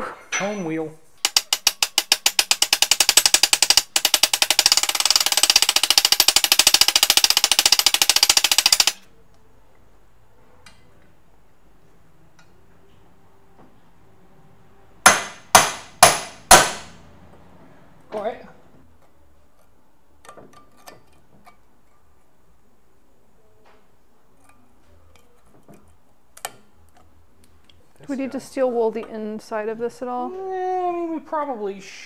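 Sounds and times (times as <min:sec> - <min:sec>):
hammer tapping rapidly on metal: 0:01.2 - 0:09.0.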